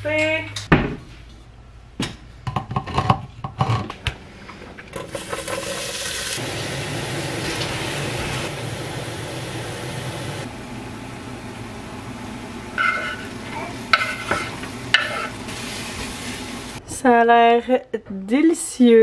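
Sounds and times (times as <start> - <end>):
onion sizzling in a hot pot: 5.0 - 16.8
pot and utensils knocking: 12.8 - 13.3, 13.9 - 15.4.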